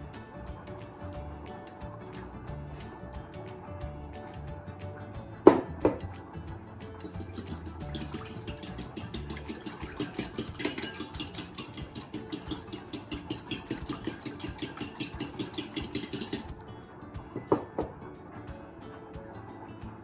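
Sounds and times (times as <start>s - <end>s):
spoon clinking in a ceramic bowl: 7.0s - 16.5s, 17.3s - 17.8s.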